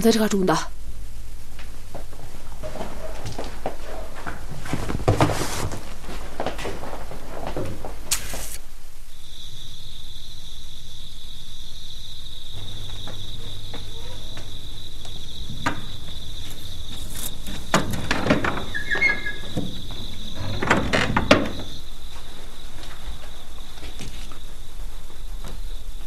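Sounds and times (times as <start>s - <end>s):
crickets trilling: 8.0s - 26.0s.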